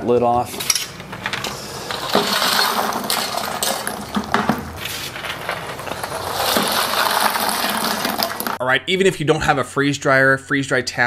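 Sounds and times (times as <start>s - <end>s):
candy pieces rattling into bucket: 1.1s - 8.6s.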